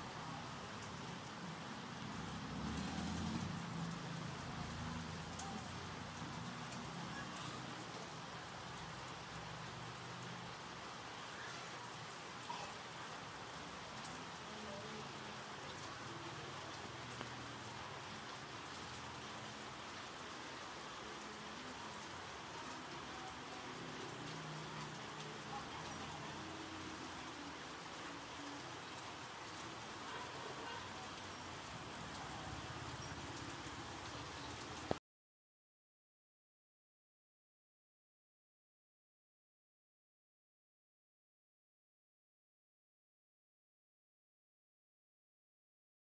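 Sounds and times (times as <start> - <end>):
faint murmur of market: 0.0 - 35.0.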